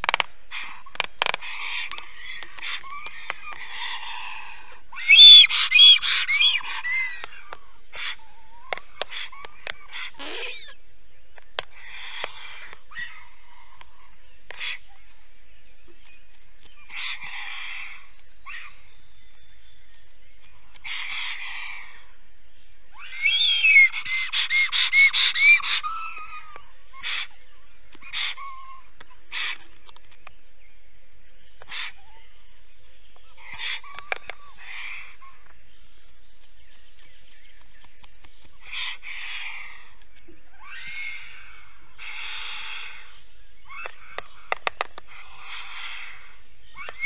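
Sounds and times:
stork giving hoarse hissing calls: 33.4 - 34.0, 38.6 - 39.7, 40.7 - 43.2, 45.1 - 46.4.

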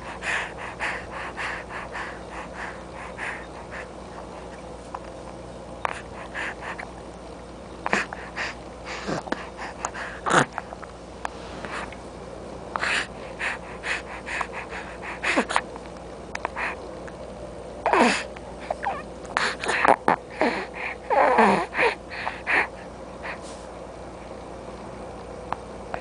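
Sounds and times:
baby breathing noisily: 0.0 - 3.9
baby vocal sounds: 17.9 - 22.0.

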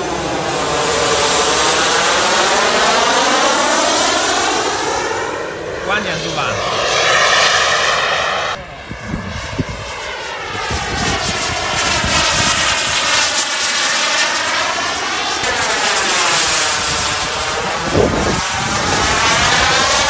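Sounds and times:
model jet whine: 0.0 - 20.0.

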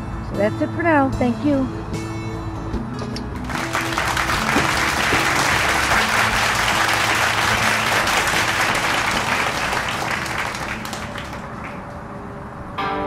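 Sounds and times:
background music: 0.0 - 11.6
crowd applauding: 3.4 - 12.0.

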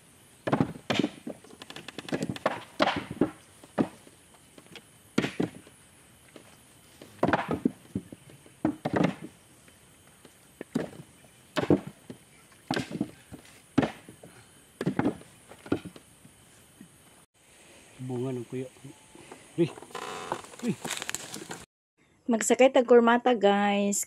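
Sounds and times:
coconuts thudding and knocking: 0.4 - 9.4, 10.1 - 16.0.

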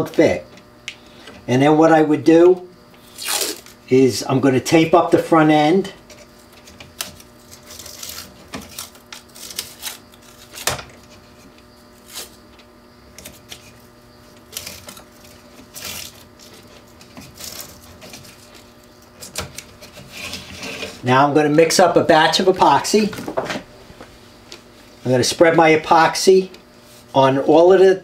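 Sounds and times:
masking tape ripping off roll: 3.0 - 3.8, 6.9 - 11.2, 12.0 - 12.4, 14.4 - 20.8.

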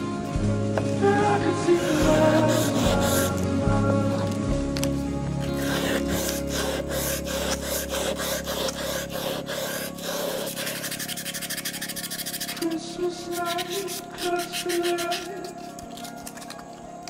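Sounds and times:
soft music with singing: 0.0 - 17.0
knife rubbing strokes: 1.6 - 3.5, 5.4 - 16.8.

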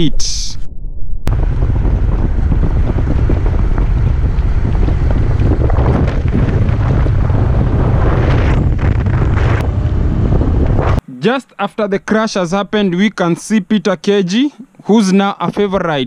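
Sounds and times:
wind buffeting microphone: 1.2 - 11.0.

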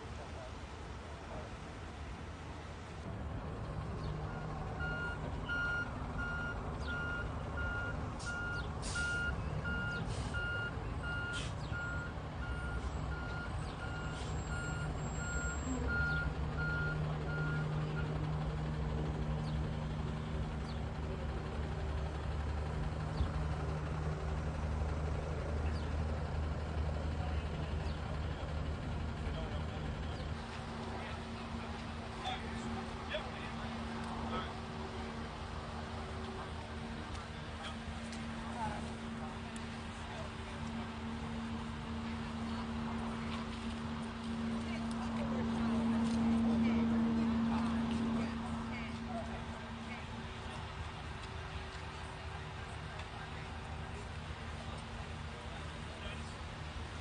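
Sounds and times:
truck engine rumbling: 0.0 - 57.0
truck reversing alarm beeping: 3.9 - 18.4.

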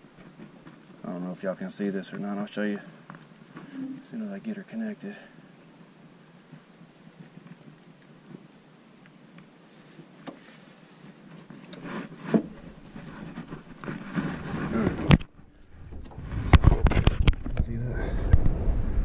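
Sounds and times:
sharp clicks: 0.2 - 4.1
hands handling a fishing line: 5.4 - 15.3.

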